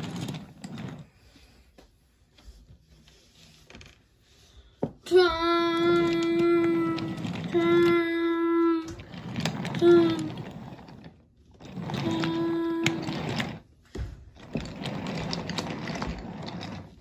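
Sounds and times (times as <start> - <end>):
toy train rolling on wooden track: 0.0 - 1.2, 5.1 - 13.7, 14.3 - 17.0.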